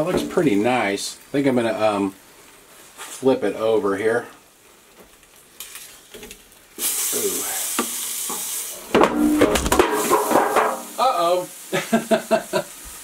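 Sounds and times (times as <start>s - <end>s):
pork chop sizzling: 0.0s - 13.0s
fork knocking metal basket: 9.0s - 10.9s.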